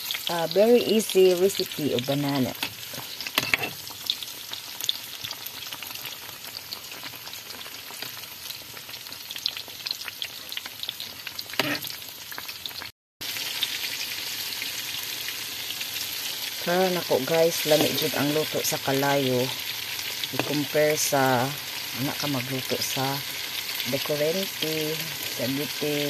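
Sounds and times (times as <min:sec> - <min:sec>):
bananas sizzling in hot oil: 0:00.0 - 0:26.0
metal spoon turning food: 0:02.6 - 0:03.8.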